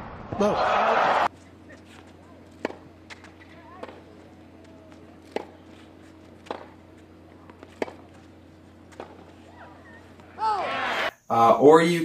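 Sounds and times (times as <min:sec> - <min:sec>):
low arena hum: 0:00.0 - 0:12.0
tennis ball bouncing: 0:01.8 - 0:10.4
tennis racket strikes: 0:05.2 - 0:08.2, 0:08.9 - 0:09.3.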